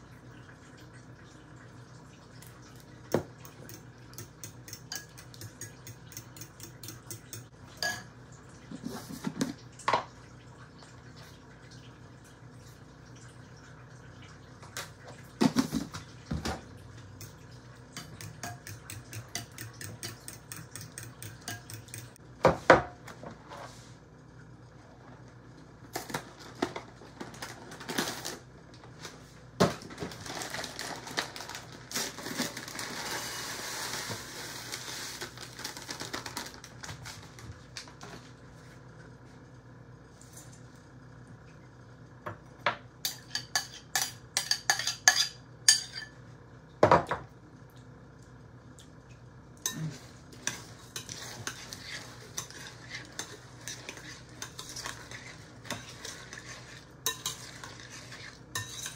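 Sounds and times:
spoon clinking glass bowl: 3.6s - 8.1s, 18.0s - 22.2s, 43.1s - 46.2s, 58.6s - 58.9s.

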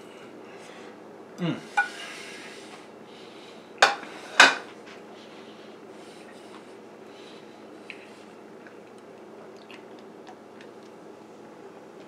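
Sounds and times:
dishes clattering: 3.8s - 4.7s
dishes clinking: 3.8s - 4.7s.

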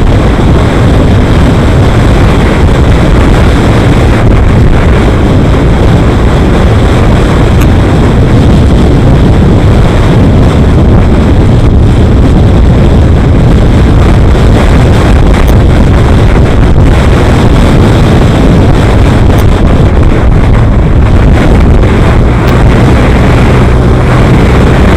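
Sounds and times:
road and vehicle noise: 0.0s - 24.9s
wind rush on microphone: 0.0s - 24.9s.

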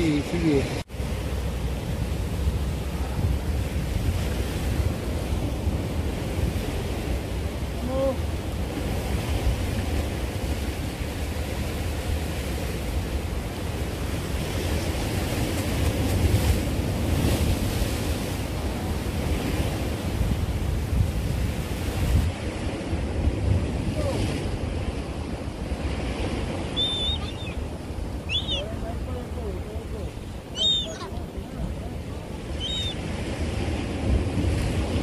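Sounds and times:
waves washing against rocks: 0.0s - 35.0s
wind buffeting microphone: 0.0s - 35.0s.

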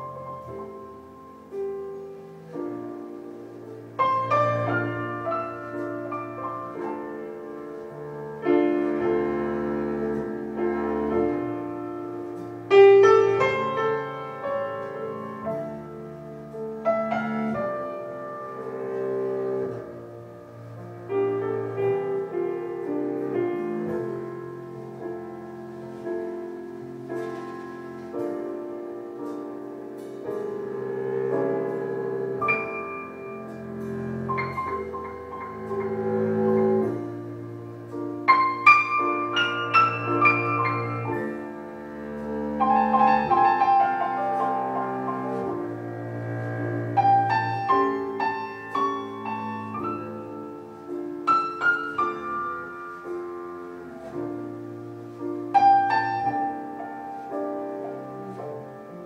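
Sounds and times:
slow piano chords ringing: 0.0s - 59.0s.

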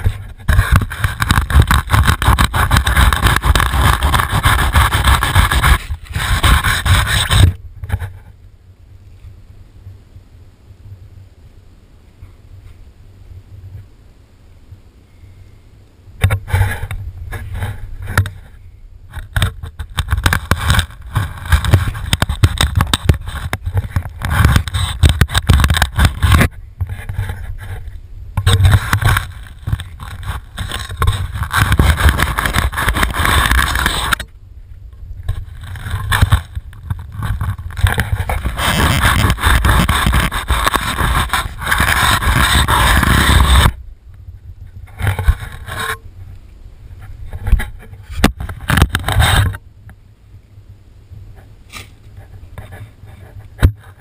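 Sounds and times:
knife scraping through fish: 0.5s - 7.6s, 37.2s - 43.7s.

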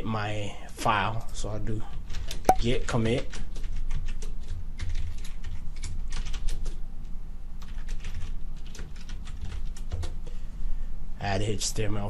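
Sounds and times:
computer keyboard typing: 3.1s - 6.8s, 7.6s - 10.2s.

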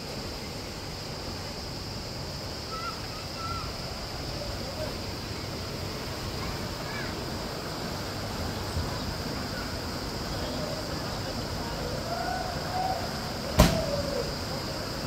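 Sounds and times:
faint distant voices: 0.0s - 15.0s
outdoor background noise: 0.0s - 15.0s
sharp knock: 13.6s - 13.9s.

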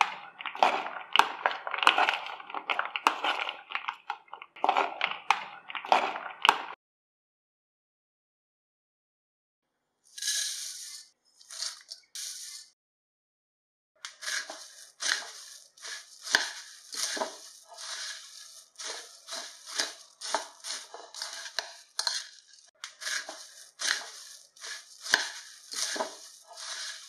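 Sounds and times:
dry rustling of puffed rice: 14.1s - 27.0s.

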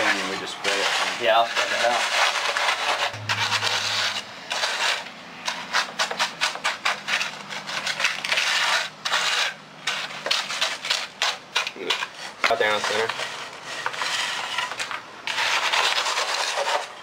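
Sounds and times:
trowel scraping wet concrete: 0.0s - 3.1s, 4.5s - 17.0s.

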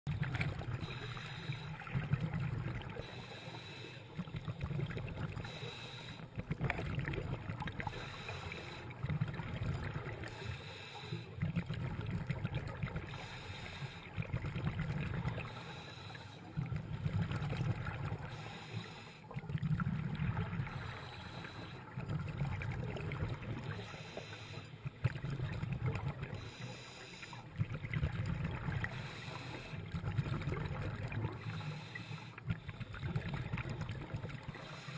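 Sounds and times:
exhaled bubbles underwater: 0.1s - 34.9s
diver breathing through regulator: 0.7s - 2.2s, 2.8s - 4.6s, 5.2s - 6.4s, 7.8s - 9.1s, 10.1s - 11.5s, 13.0s - 14.3s, 15.3s - 16.8s, 18.2s - 19.3s, 20.6s - 22.0s, 23.6s - 25.0s, 26.3s - 27.6s, 28.7s - 30.2s, 31.2s - 33.4s, 34.4s - 34.9s.

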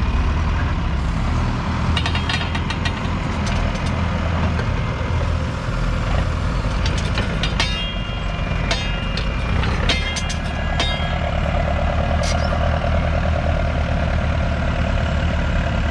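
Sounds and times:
tractor diesel engine under load: 0.0s - 15.9s
metallic clinks of plough: 2.0s - 4.0s, 6.7s - 12.7s.

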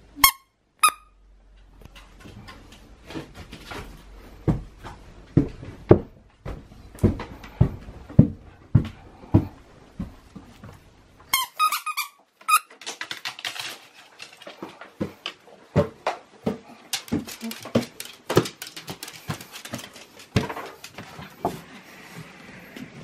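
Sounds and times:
squeaky toy squeaking: 0.2s - 1.1s, 11.3s - 12.7s
dog claws ticking on wooden floor: 12.8s - 15.4s, 16.0s - 21.5s.

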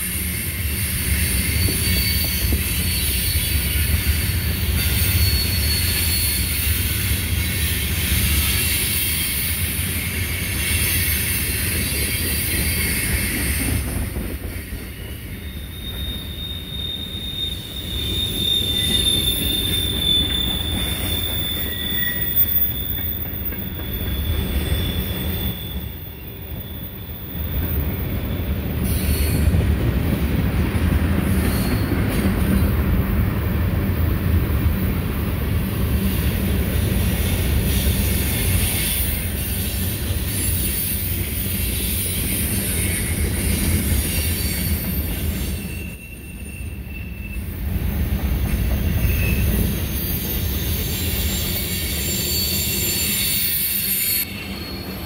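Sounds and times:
steel wheels rumbling on rail: 0.0s - 55.0s
high-pitched wheel squeal: 0.2s - 13.8s, 14.9s - 27.9s, 31.4s - 32.0s, 37.6s - 47.7s, 48.8s - 55.0s.

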